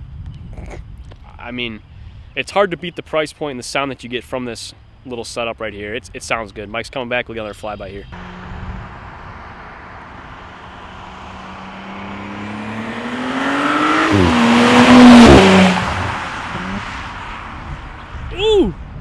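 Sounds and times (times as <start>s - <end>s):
car engine accelerating past: 8.2s - 17.7s.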